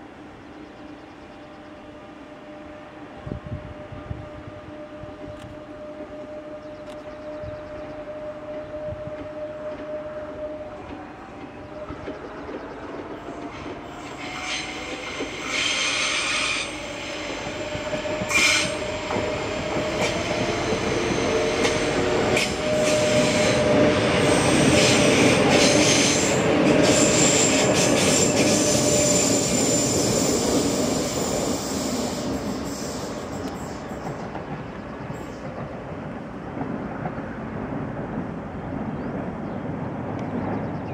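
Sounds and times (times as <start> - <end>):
electric train passing: 0.0 - 40.9
high wheel squeal: 14.0 - 34.0.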